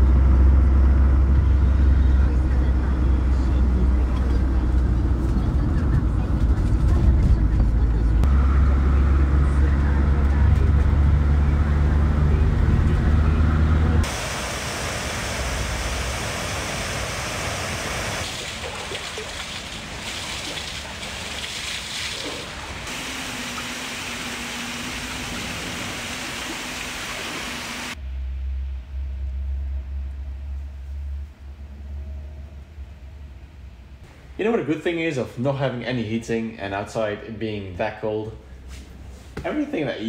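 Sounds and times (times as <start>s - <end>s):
car engine and road hum: 0.0s - 34.5s
stream rushing over rocks: 14.0s - 28.0s
low hum: 22.9s - 34.7s.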